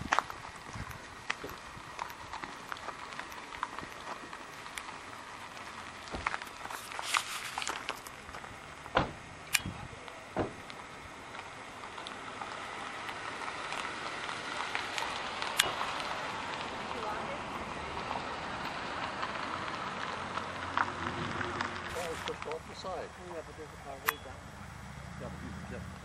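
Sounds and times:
footsteps on gravel: 0:00.0 - 0:09.2, 0:20.2 - 0:23.1
steady outdoor noise: 0:00.0 - 0:26.0
sharp knocks: 0:10.4 - 0:10.6.

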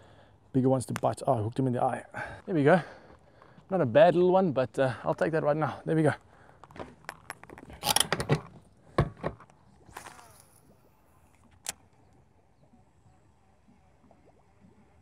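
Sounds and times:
clicks and knocks of fishing gear: 0:06.4 - 0:10.6.

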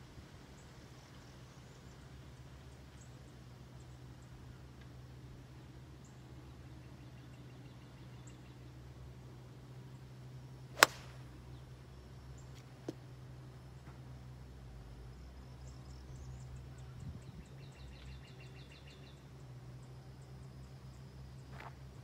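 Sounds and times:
steady low hum: 0:00.0 - 0:22.0
golf club striking ball: 0:10.7 - 0:11.3.

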